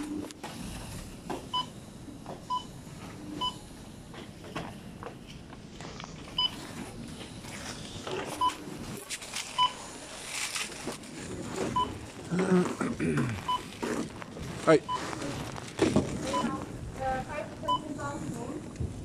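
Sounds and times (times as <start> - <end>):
barcode scanner beeps: 16.3 - 16.6, 17.7 - 18.0.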